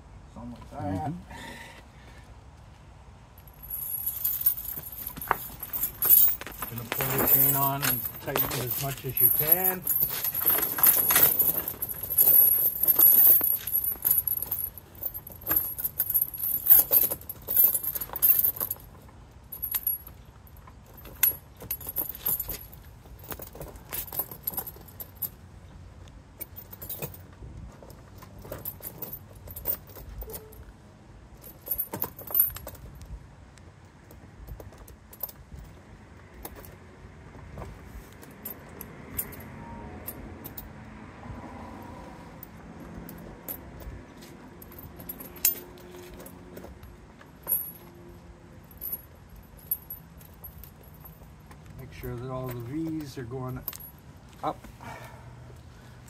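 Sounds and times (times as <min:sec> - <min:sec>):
tire chain jangling: 0:03.4 - 0:25.6, 0:26.3 - 0:30.7, 0:31.3 - 0:33.0, 0:38.2 - 0:39.5, 0:42.4 - 0:56.0.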